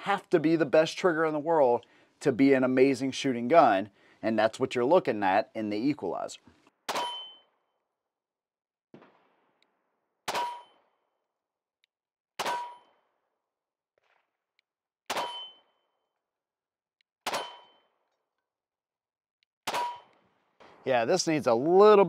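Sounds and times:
pistol shots: 6.9 - 7.4, 10.2 - 11.0, 12.4 - 13.1, 15.1 - 15.8, 17.2 - 18.0, 19.6 - 20.8
steel plate target ringing: 6.9 - 7.5, 10.3 - 10.8, 12.5 - 12.9, 15.2 - 15.8, 19.7 - 20.1.

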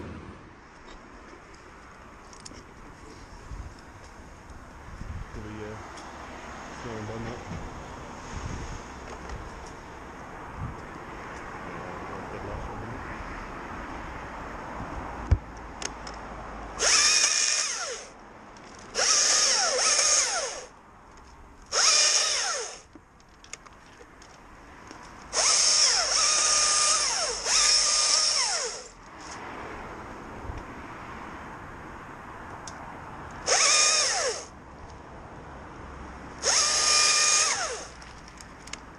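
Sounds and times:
power tool whining: 16.8 - 18.1, 18.9 - 20.7, 21.7 - 22.9, 25.3 - 29.0, 33.4 - 34.5, 36.4 - 38.1.

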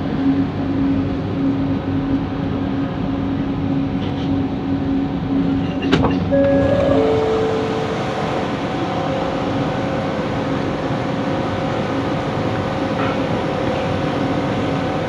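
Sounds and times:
rail rumble: 6.3 - 12.0.

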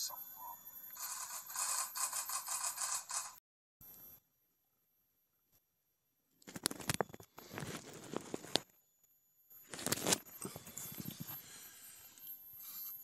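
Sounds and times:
camera handling rustle: 9.7 - 11.2.

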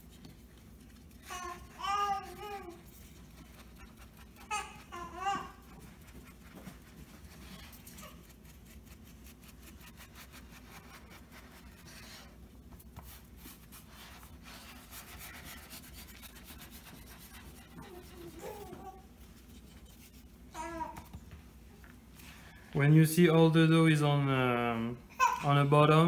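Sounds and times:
fingers rubbing pastry dough: 0.0 - 20.5.

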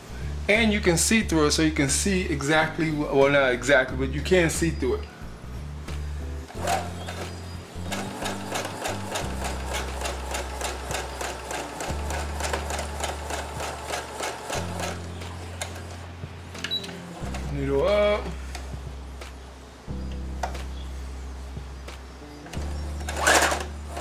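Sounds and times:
sewing machine stitching: 6.5 - 16.0, 23.0 - 24.0.

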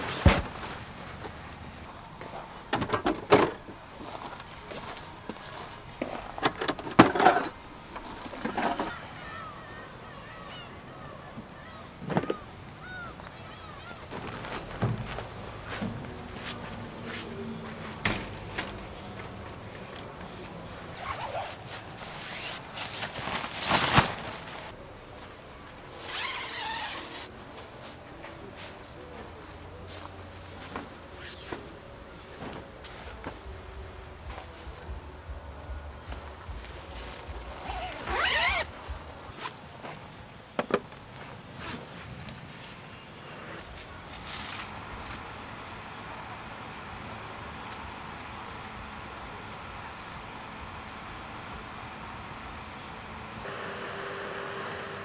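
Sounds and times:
tent fabric rustling: 0.0 - 2.7, 13.6 - 16.7, 20.9 - 29.2, 36.2 - 39.9, 41.0 - 45.1
chorus of insects: 0.0 - 55.0
camping gear knocking and clattering: 2.6 - 9.0, 35.8 - 39.2, 40.0 - 42.5
zipper pulled: 26.0 - 27.3, 37.7 - 38.7.

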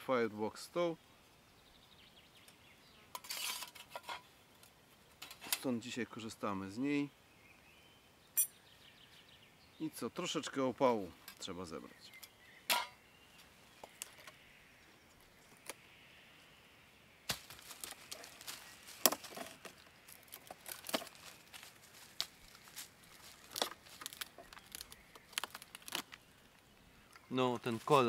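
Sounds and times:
twigs snapping: 17.3 - 26.7.

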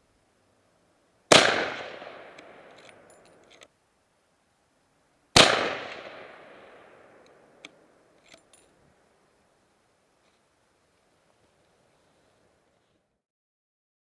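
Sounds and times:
rifle shots with echo: 1.3 - 3.1, 5.4 - 7.2
faint clicks: 7.2 - 8.8.

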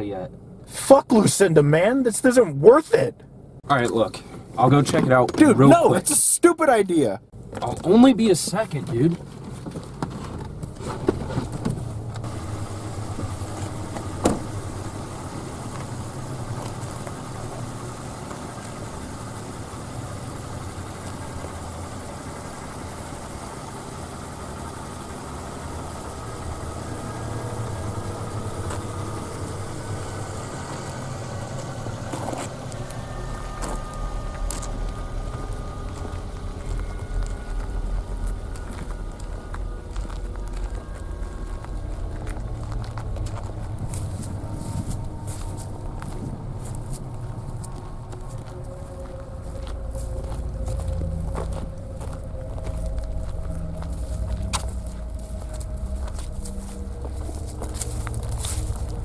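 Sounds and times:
car engine idling: 0.0 - 59.0
deep low rumble: 9.1 - 59.0
car door opening: 9.2 - 14.8
car door shutting: 9.3 - 14.8.

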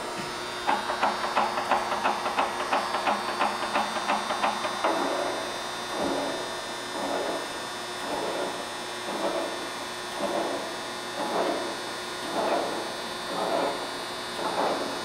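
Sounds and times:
grinder machine hum: 0.0 - 15.0.

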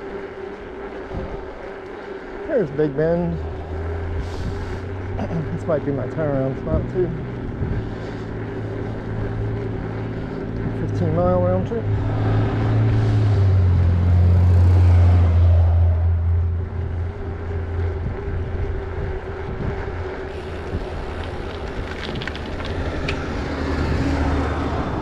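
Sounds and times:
bus engine droning: 0.0 - 25.0
wind noise on microphone: 1.1 - 1.6, 4.0 - 5.1, 6.6 - 9.9, 16.5 - 25.0.

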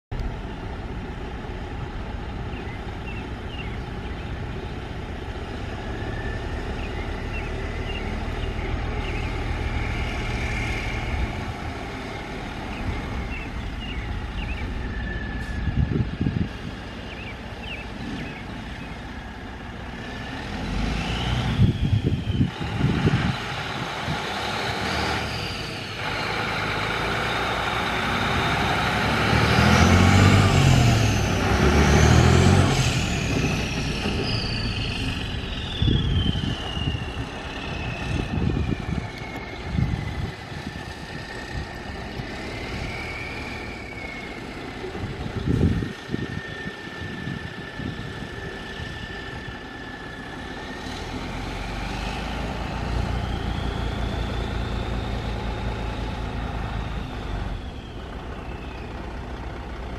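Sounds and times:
diesel truck engine revving: 0.2 - 59.9
turbo whine: 5.5 - 19.0, 21.0 - 29.1, 32.3 - 59.8.

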